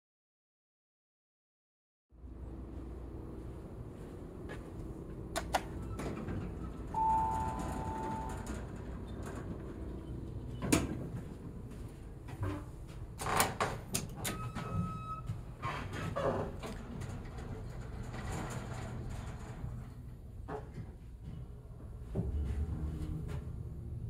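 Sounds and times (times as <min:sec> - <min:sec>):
low machinery hum: 0:02.2 - 0:24.0
elevator doors sliding: 0:03.0 - 0:24.0
elevator chime: 0:05.8 - 0:10.7, 0:14.2 - 0:15.4.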